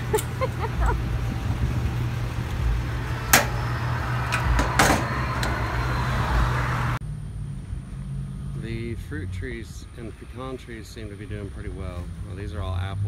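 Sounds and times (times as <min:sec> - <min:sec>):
gas pump humming: 0:00.0 - 0:07.0
fuel nozzle metal clack: 0:03.2 - 0:05.6
nozzle clanking on pump: 0:03.3 - 0:03.6.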